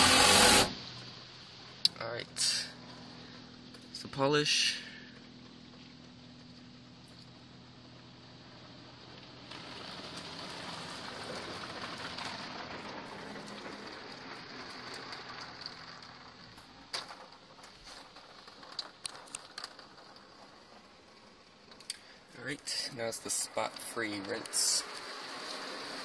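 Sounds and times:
water jets spraying car: 0.0 - 1.8, 8.2 - 26.0.

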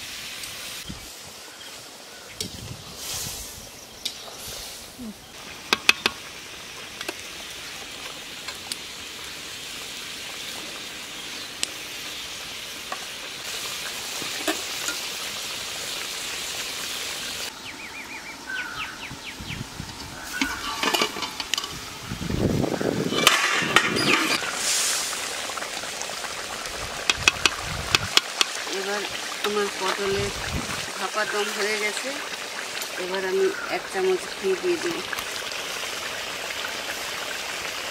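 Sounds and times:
curry simmering and sizzling: 0.0 - 37.9
spatula scraping metal pan: 20.3 - 21.8, 23.0 - 24.5.

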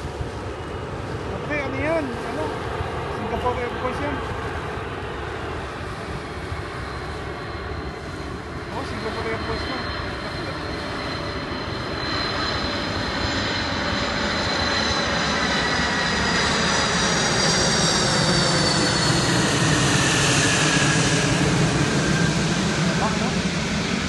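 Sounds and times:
jet aircraft passing overhead: 0.0 - 24.0.

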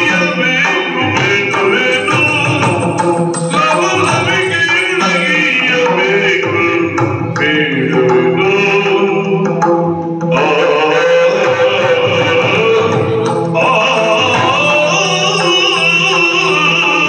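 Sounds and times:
person singing ornamented vocal line: 0.0 - 9.5, 10.3 - 17.0
drum strokes: 1.2 - 6.3.

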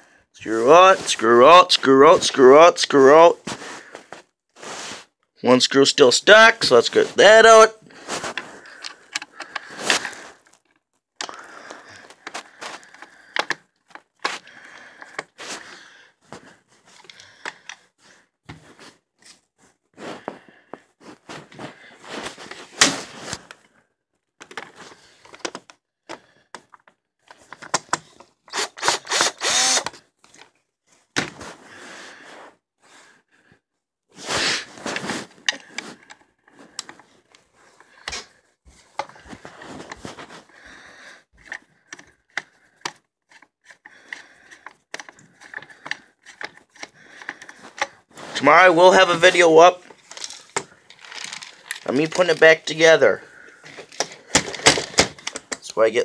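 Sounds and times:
handling knocks and clicks: 8.2 - 11.4, 12.0 - 14.4, 24.4 - 28.4, 34.9 - 40.4, 41.4 - 48.0, 49.9 - 52.5, 53.6 - 55.8
cordless drill whirring: 28.5 - 30.0.

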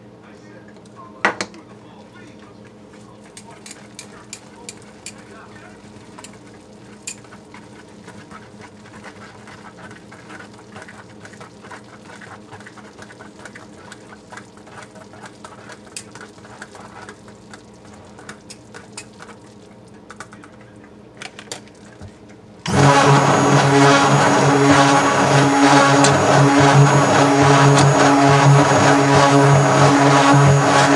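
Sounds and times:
clicks and scrapes in soap batter: 6.2 - 19.4
stick blender motor running: 22.7 - 30.9.

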